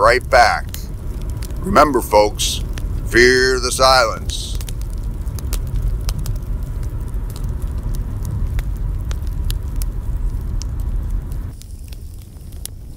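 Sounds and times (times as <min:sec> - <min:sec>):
campfire crackling: 0:00.0 - 0:12.9.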